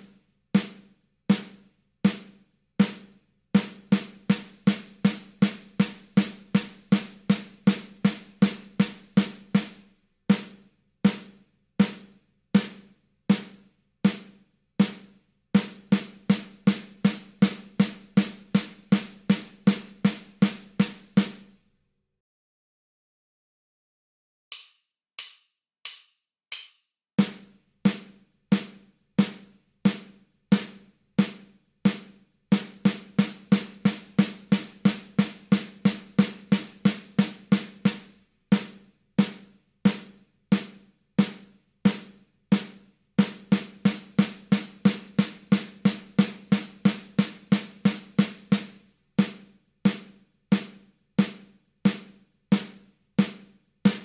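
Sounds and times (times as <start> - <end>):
snare drum strokes: 12.6 - 21.4, 24.6 - 54.0.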